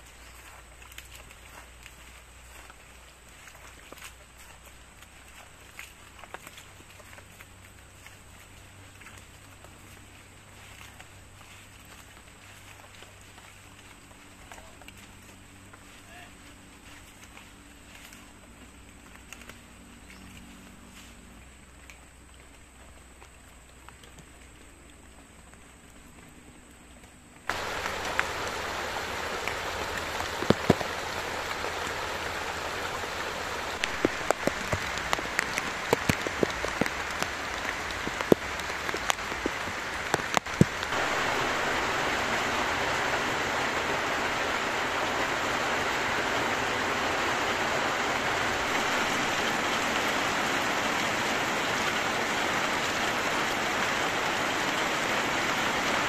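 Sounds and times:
sharp drips landing close: 0:27.0 - 0:55.7
heavy rain falling: 0:27.5 - 0:56.0.

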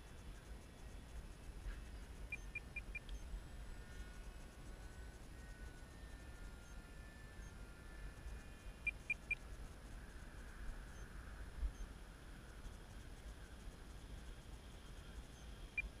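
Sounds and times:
electric motor whine: 0:03.2 - 0:08.8.

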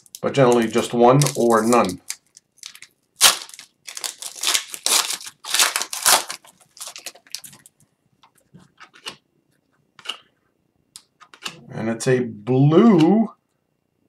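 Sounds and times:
cards rustling: 0:00.0 - 0:07.7
plastic wrapper tearing and crinkling: 0:00.0 - 0:07.7.

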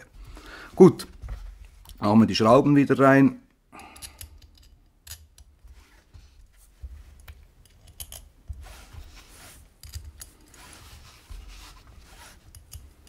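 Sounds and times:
small metallic clicks and scrapes: 0:03.9 - 0:06.1, 0:07.2 - 0:13.0.

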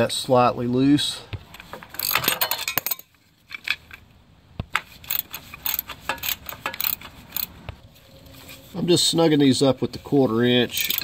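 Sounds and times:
ratchet clicking: 0:02.0 - 0:03.0, 0:04.8 - 0:07.5, 0:10.8 - 0:11.0.

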